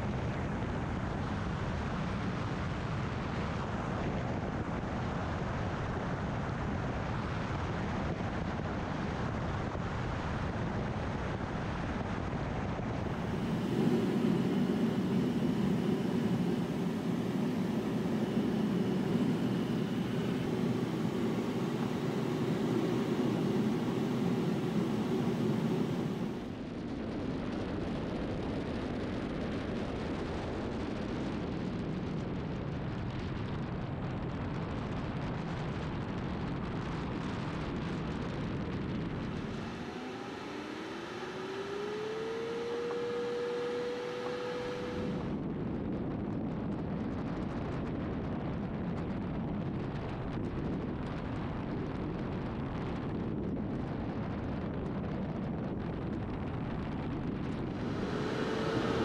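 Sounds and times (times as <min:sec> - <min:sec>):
rising tone: 0:13.0 - 0:26.5, 0:39.4 - 0:45.3, 0:57.7 - 0:59.0
wind rushing: 0:57.5 - 0:59.0.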